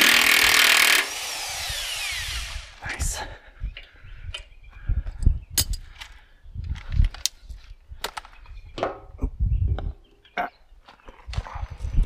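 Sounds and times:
hand tools and metal parts clicking: 5.6 - 7.4.

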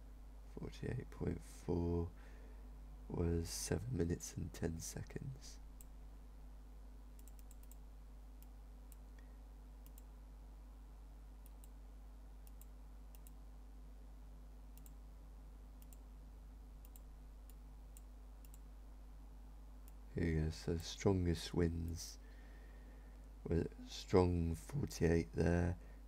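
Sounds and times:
low steady hum: 0.0 - 26.0
computer mouse clicks: 7.2 - 7.8, 9.8 - 10.1, 11.4 - 11.8, 12.4 - 13.4, 14.8 - 15.0, 15.8 - 16.1, 16.8 - 18.7.

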